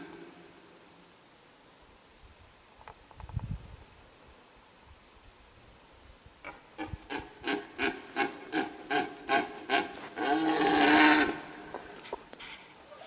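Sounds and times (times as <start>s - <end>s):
deer stag roaring: 6.8s - 11.8s.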